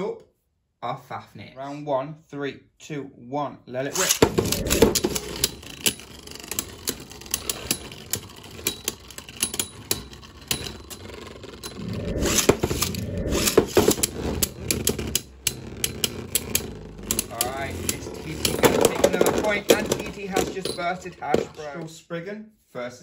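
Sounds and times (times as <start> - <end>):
spinning tops scraping and clicking: 3.9 - 21.2.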